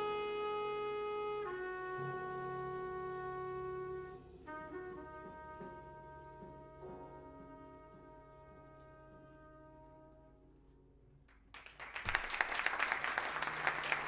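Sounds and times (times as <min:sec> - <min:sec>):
jazz trumpet piano and bass chord: 0:00.0 - 0:11.2
audience applause: 0:11.5 - 0:14.0.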